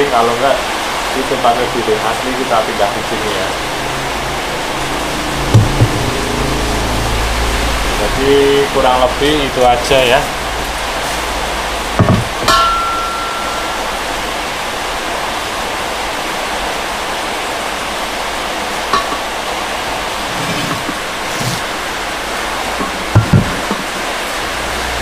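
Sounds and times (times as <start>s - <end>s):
wheels thumping: 5.4s - 6.4s, 12.0s - 13.6s, 22.8s - 24.0s
short metallic ring: 12.4s - 14.2s
metal wheels knocking: 22.8s - 24.0s.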